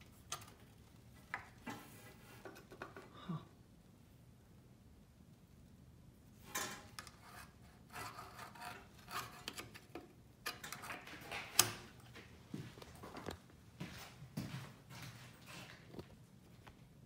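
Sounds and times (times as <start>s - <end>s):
metal instruments rubbing and scraping: 6.4s - 9.9s.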